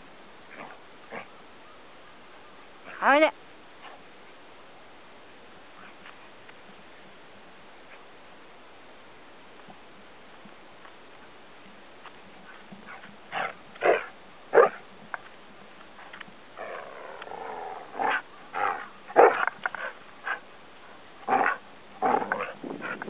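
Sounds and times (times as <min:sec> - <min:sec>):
dog drawn-out call: 0:16.6 - 0:20.4.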